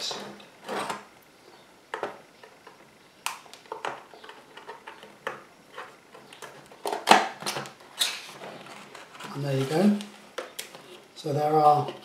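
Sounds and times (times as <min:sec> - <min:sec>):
paper rustling: 0:08.0 - 0:11.0.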